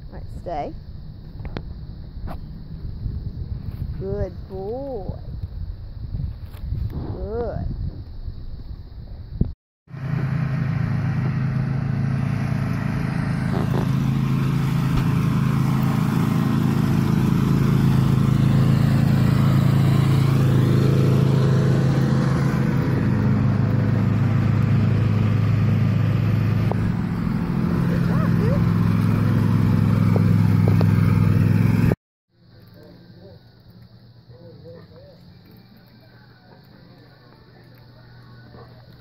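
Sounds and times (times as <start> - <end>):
vehicle engine idling: 9.9 - 39.0.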